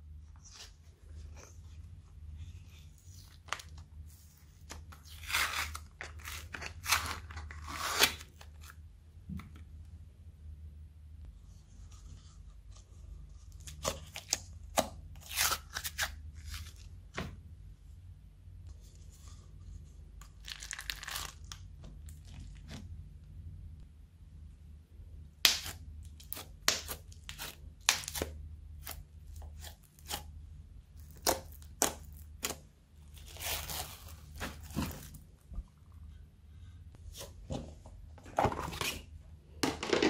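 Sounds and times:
low steady hum: 0.0 - 40.0
crunchy slime crackling and tearing: 20.2 - 22.7.

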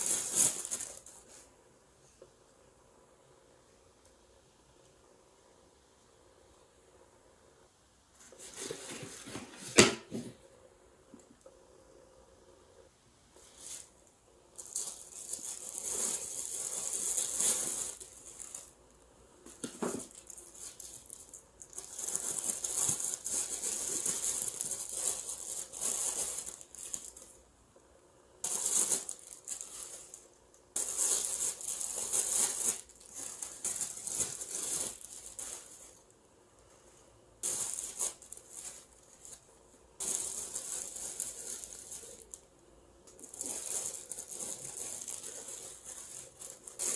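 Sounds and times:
tissue paper rustling: 0.0 - 1.5, 8.2 - 10.4, 13.4 - 14.0, 14.6 - 18.7, 19.5 - 27.4, 28.4 - 36.1, 36.8 - 42.4, 43.1 - 46.9.

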